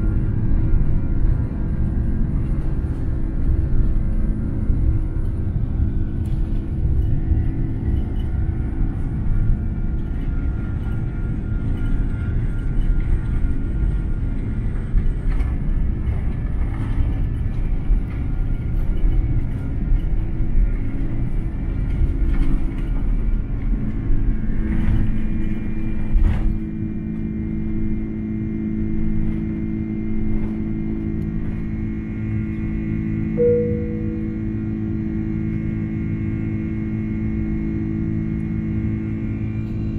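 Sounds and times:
jet engine drone: 0:33.4 - 0:36.0.

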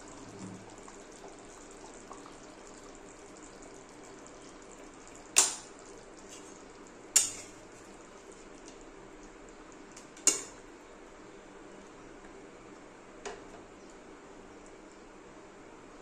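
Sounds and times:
curry simmering: 0:00.0 - 0:15.2
metal spatula clanking on pan: 0:07.2 - 0:07.5.

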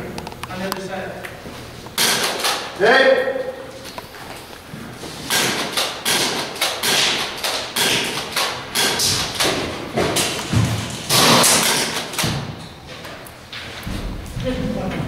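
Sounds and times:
sharp knocks and thuds: 0:08.8 - 0:12.6.

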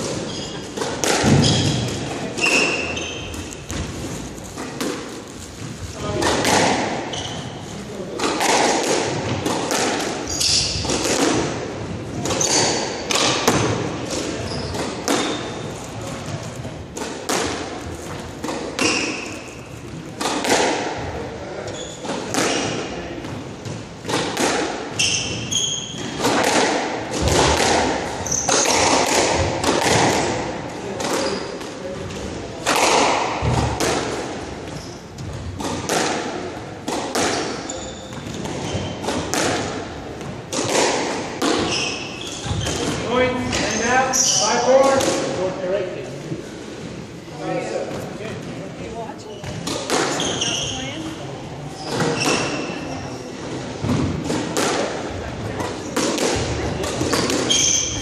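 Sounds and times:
shoes squeaking on floor: 0:00.0 - 0:05.8, 0:07.0 - 0:07.7, 0:10.2 - 0:11.0, 0:12.3 - 0:13.2, 0:14.3 - 0:16.4, 0:18.8 - 0:20.0, 0:21.6 - 0:22.8, 0:24.9 - 0:26.3, 0:28.1 - 0:28.9, 0:31.2 - 0:31.6, 0:34.6 - 0:35.4, 0:37.4 - 0:39.3, 0:41.5 - 0:44.9, 0:49.2 - 0:53.6, 0:57.0 - 0:58.0
squash ball hitting rackets and walls: 0:00.0 - 0:45.8, 0:49.3 - 0:58.0.

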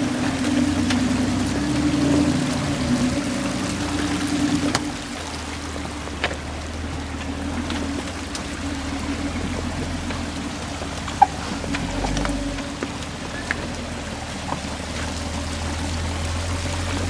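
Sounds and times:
off-road vehicle engine running: 0:00.0 - 0:17.0
water and slush under tyres: 0:00.0 - 0:17.0.

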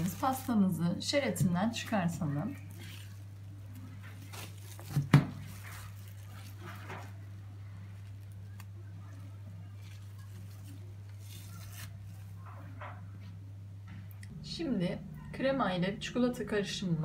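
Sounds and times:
cling film crinkling and rustling: 0:00.0 - 0:00.8, 0:02.5 - 0:12.9
steady low hum: 0:11.9 - 0:17.0.

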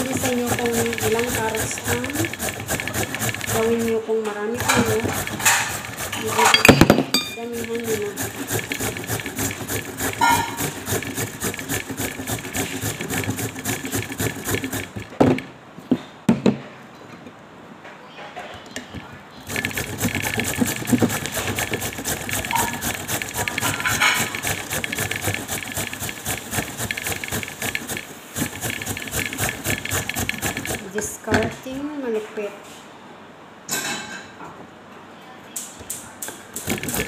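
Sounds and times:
carrot grating on metal grater: 0:00.0 - 0:06.6, 0:07.2 - 0:15.2, 0:19.4 - 0:31.5, 0:36.6 - 0:37.0.

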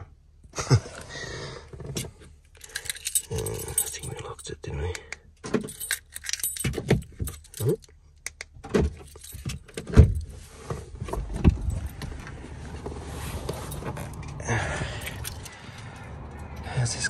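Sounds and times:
keys jangling: 0:02.4 - 0:04.5, 0:05.6 - 0:07.9, 0:08.9 - 0:10.3, 0:11.4 - 0:12.3, 0:13.4 - 0:16.1
car engine running: 0:10.8 - 0:17.0.

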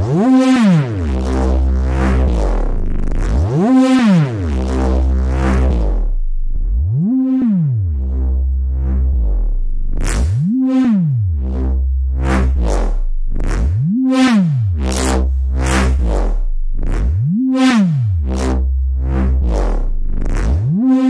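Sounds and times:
deep sub bass: 0:00.0 - 0:21.0
stuttering bass growls: 0:00.0 - 0:21.0
swooping synth tone: 0:05.1 - 0:16.4, 0:17.2 - 0:21.0.

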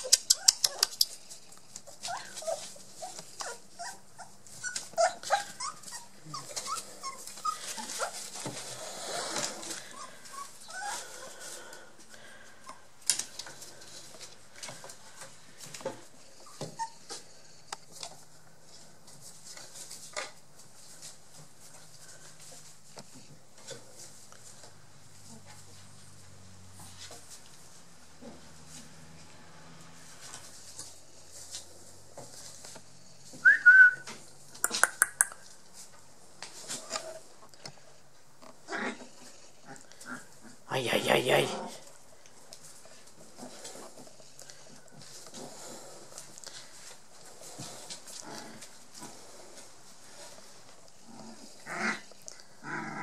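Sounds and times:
puppy squeaks: 0:00.0 - 0:01.2, 0:02.1 - 0:08.2
puppy whimpering: 0:00.0 - 0:01.2, 0:01.8 - 0:08.4, 0:09.0 - 0:11.4, 0:16.4 - 0:17.2
faint scuffling: 0:00.0 - 0:29.4
paws rustling newspaper: 0:00.5 - 0:34.6.

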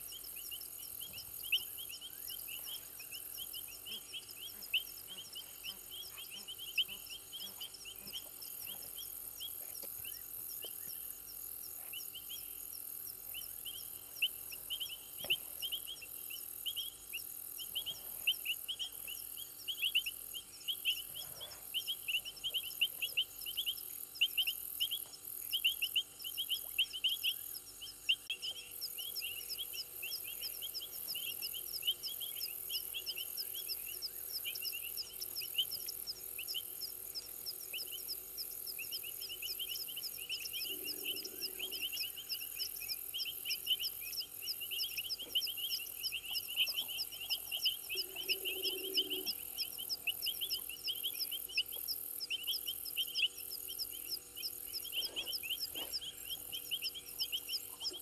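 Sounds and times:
frogs and insects chirping: 0:00.0 - 0:58.0.

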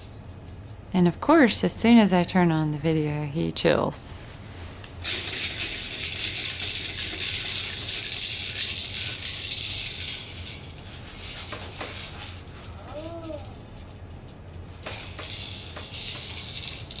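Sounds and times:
plastic balls rattling in toy: 0:05.0 - 0:17.0.

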